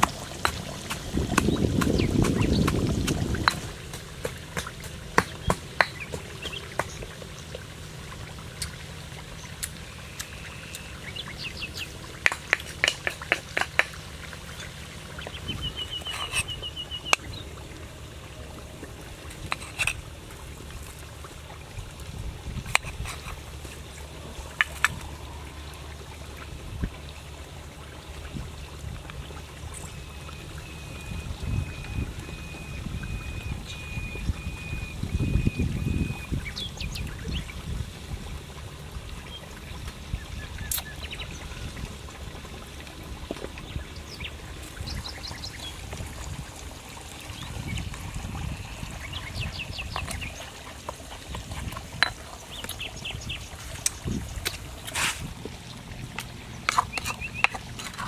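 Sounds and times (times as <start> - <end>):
pestle pounding in stone mortar: 0.0 - 7.1, 12.2 - 14.0
birds chirping: 0.0 - 18.6, 28.1 - 37.6, 39.2 - 41.8, 43.4 - 46.0, 46.8 - 54.6, 55.6 - 58.0
spoon working paste in mortar: 16.0 - 16.6, 56.7 - 58.0.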